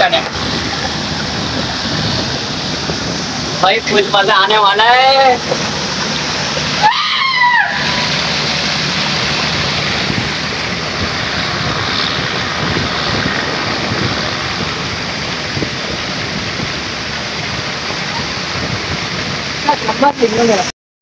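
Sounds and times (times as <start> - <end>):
water rushing down slide: 0.0 - 20.7
person whooping: 6.8 - 8.1.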